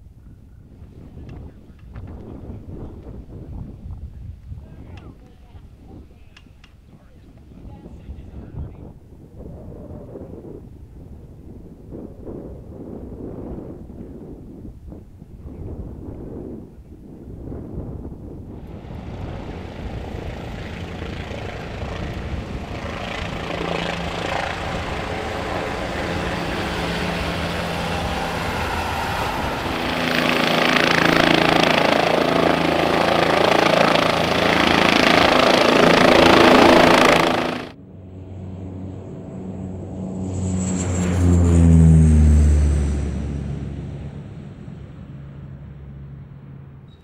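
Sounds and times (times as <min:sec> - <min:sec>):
helicopter rotor and engine: 0:18.5 - 0:46.0
engine surge with falling tones: 0:18.5 - 0:46.9.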